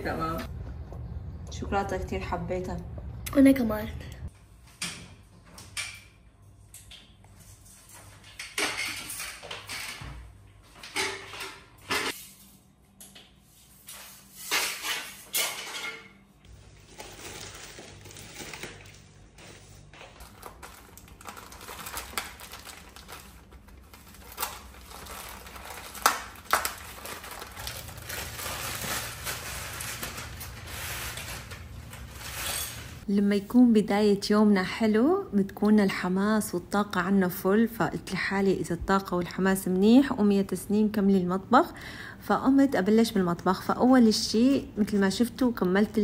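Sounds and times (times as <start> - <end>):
dishes and cutlery clinking: 8.0 - 10.1, 14.5 - 16.2.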